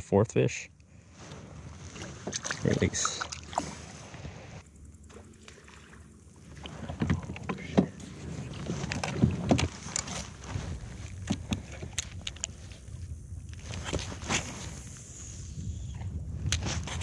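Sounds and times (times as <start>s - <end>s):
water noise: 1.0s - 17.0s.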